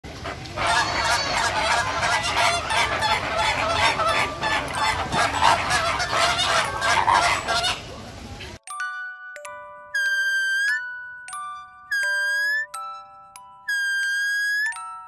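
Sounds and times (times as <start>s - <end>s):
flamingos honking: 0.1s - 8.5s.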